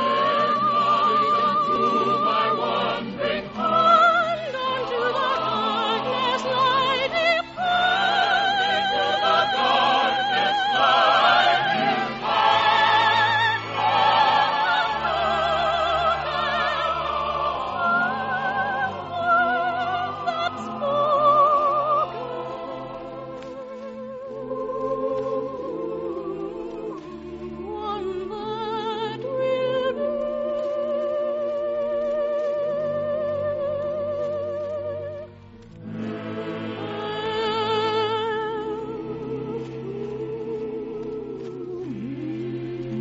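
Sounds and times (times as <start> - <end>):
orchestra playing: 0.0 - 23.9
choir singing: 0.0 - 43.0
operatic singing with vibrato: 0.0 - 43.0.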